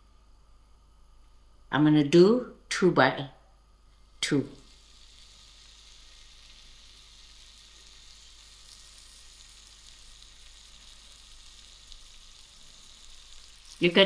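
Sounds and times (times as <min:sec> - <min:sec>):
skewers sizzling on hot plate: 0:04.0 - 0:14.0.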